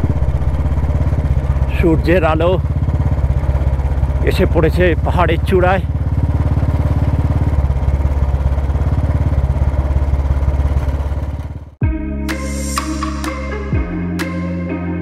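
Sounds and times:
motorcycle engine running: 0.0 - 11.8
road and wind noise: 0.0 - 11.8
music: 11.8 - 15.0.

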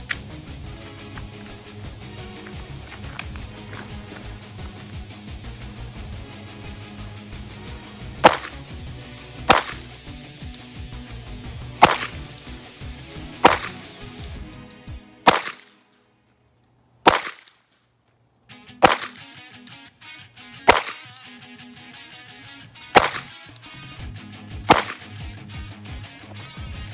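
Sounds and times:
pistol shots: 8.2 - 10.0, 11.8 - 12.5, 13.4 - 14.3, 15.2 - 15.8, 17.0 - 17.6, 18.8 - 19.4, 20.6 - 21.2, 22.9 - 23.6, 24.6 - 25.2.

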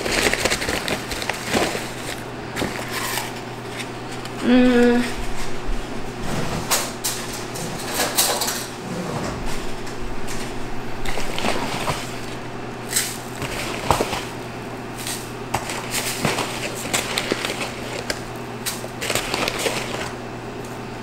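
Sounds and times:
plastic bag rustling: 0.0 - 20.2
low hum: 2.3 - 14.8
dishes and cupboards clattering: 5.0 - 14.3.

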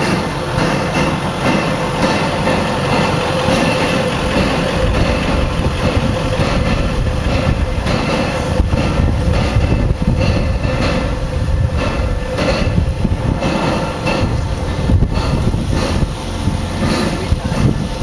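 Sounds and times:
low rumble: 0.0 - 18.0
machinery hum: 0.0 - 18.0
steam locomotive hissing: 0.0 - 18.0.

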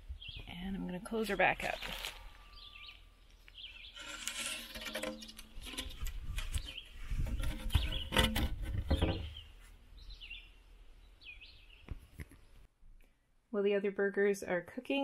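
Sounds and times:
birds chirping faintly: 0.0 - 13.3
rumbling handling noise: 3.9 - 9.5
wooden door knocking and scraping: 4.8 - 9.4.

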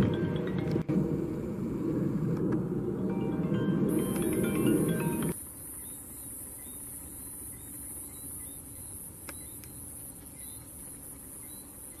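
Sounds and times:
low even rumble: 0.0 - 5.4
high-pitched insect trill: 3.9 - 12.0.

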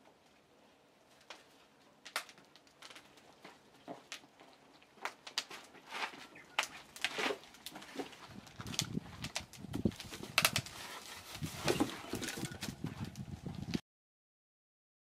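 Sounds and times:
bark scraping and rustling: 5.5 - 13.6.

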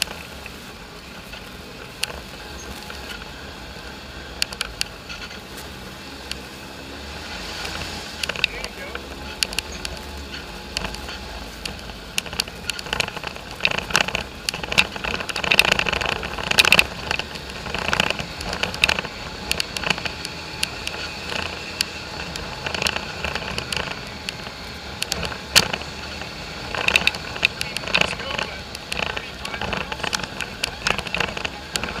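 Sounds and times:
quad bike engine running: 0.0 - 32.0
clicks knocks and rattles: 7.6 - 32.0.

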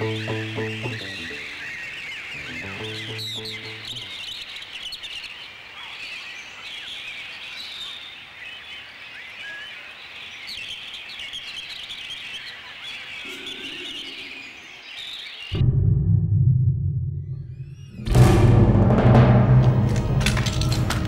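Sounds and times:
deep drum-led music: 0.0 - 1.4, 2.4 - 4.0, 15.6 - 21.0
small birds chirping: 0.0 - 15.6.

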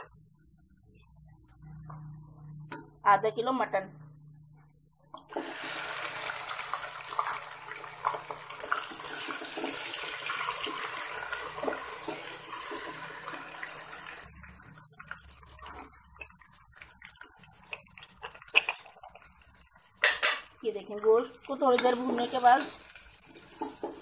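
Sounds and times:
meat sizzling in hot oil: 5.3 - 24.0.

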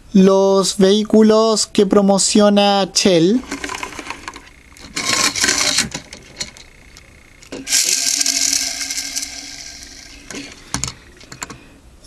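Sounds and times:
toy truck friction motor whirring: 3.4 - 11.2.

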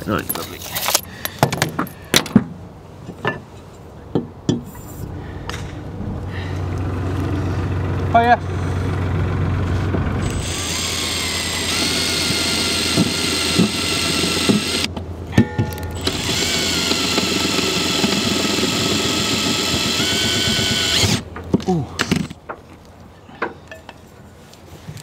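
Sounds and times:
cordless drill whining into steel: 10.2 - 14.9, 16.0 - 21.2.

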